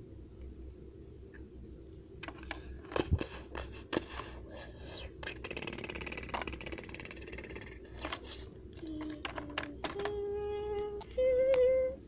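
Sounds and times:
child humming tones: 0:04.7 - 0:12.0
child making mouth sound effects: 0:05.2 - 0:08.5.

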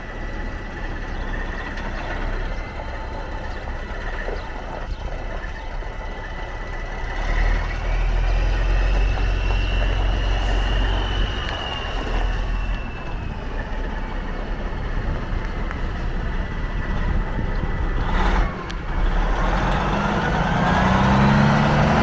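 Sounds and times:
truck diesel engine rumble: 0:00.0 - 0:22.0
high whine rising in pitch: 0:07.4 - 0:18.2.

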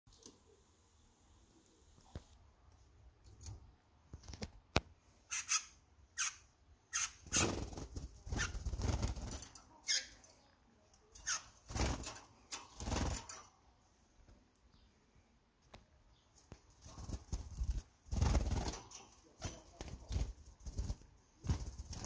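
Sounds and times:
bird wings flapping: 0:07.3 - 0:09.5, 0:16.8 - 0:22.0.

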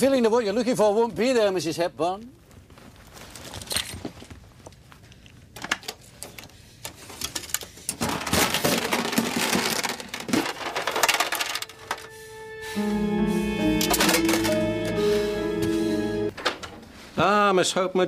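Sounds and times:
metal box scraping and rattling: 0:08.0 - 0:12.1.

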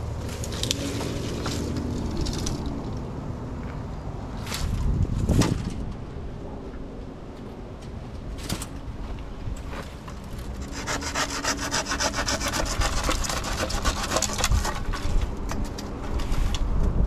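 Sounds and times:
rough rasping scrape: 0:10.4 - 0:15.3.

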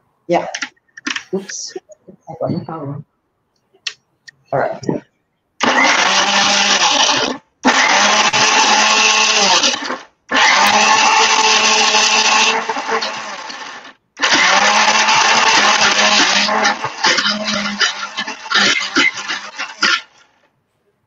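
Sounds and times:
electric blender grinding: 0:05.6 - 0:20.3.

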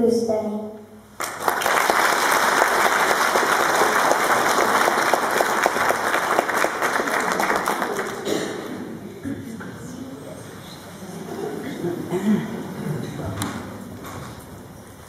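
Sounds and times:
audience applauding: 0:01.2 - 0:08.8.

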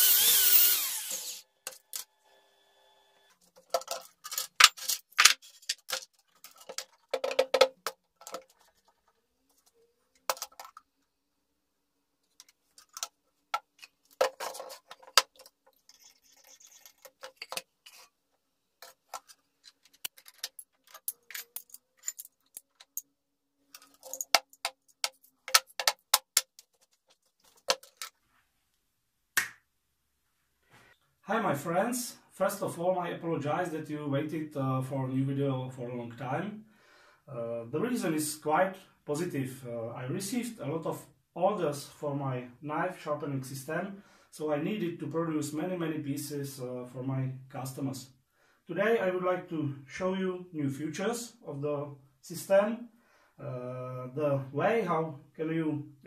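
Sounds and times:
metal and wooden parts clattering: 0:03.4 - 0:10.9, 0:12.3 - 0:18.1, 0:18.8 - 0:23.1, 0:23.7 - 0:28.2.

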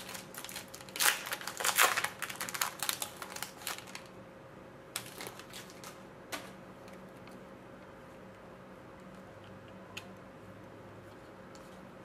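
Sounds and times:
foil wrapper crinkling and tearing: 0:00.0 - 0:04.2, 0:05.0 - 0:06.0.

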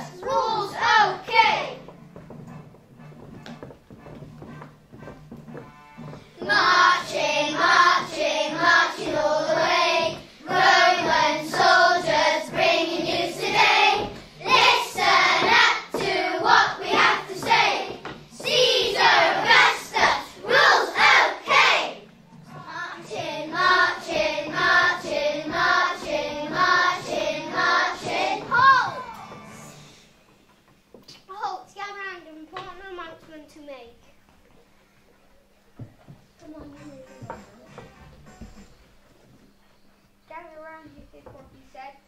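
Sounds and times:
children singing together: 0:00.0 - 0:01.8, 0:06.4 - 0:29.6.

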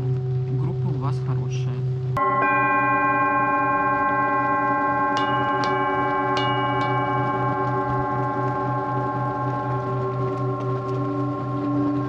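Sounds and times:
low pulsing hum: 0:00.0 - 0:12.0
singing bowls ringing: 0:02.2 - 0:12.0
light strikes on singing bowl: 0:05.1 - 0:12.0.

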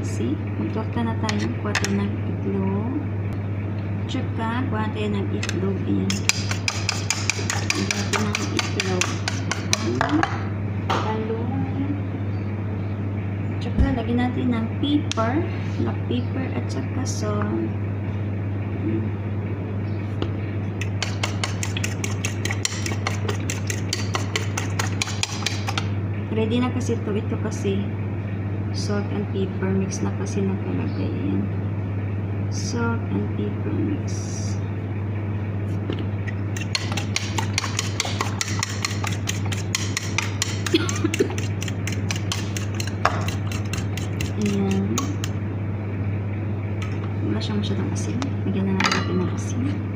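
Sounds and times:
steady low hum: 0:00.0 - 0:49.9
fork beating egg in plastic bowl: 0:06.0 - 0:10.0, 0:20.8 - 0:25.9, 0:36.5 - 0:45.4.

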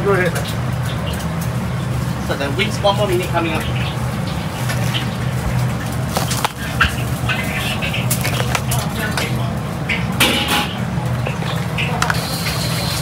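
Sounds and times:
background chatter: 0:01.6 - 0:13.0
utensils clinking: 0:04.7 - 0:13.0.

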